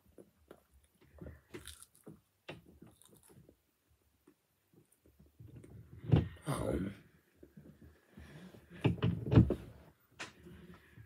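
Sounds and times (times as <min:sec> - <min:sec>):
chewing crunch: 0:00.4 - 0:02.2, 0:02.8 - 0:03.5.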